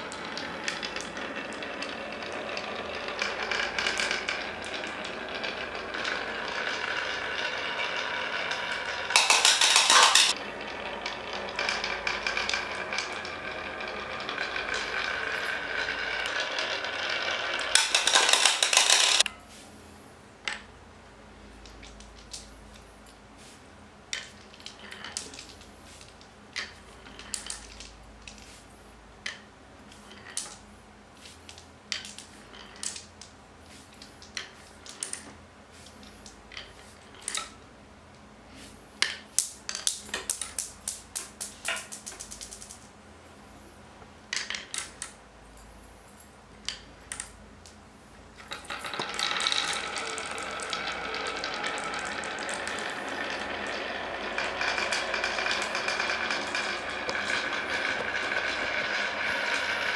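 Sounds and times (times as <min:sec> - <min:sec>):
balls clacking on wooden marble run: 0:00.0 - 0:19.4, 0:24.1 - 0:28.4, 0:29.2 - 0:30.7, 0:31.9 - 0:33.3, 0:34.0 - 0:35.4, 0:36.0 - 0:37.6, 0:39.0 - 0:42.9, 0:44.3 - 0:45.2, 0:48.4 - 0:59.9.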